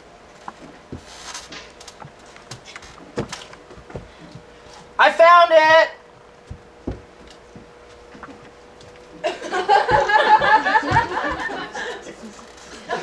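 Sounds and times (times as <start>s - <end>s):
faint steady hum: 0.0s - 13.0s
soft knocks: 6.4s - 8.6s
audience laughing: 9.2s - 13.0s.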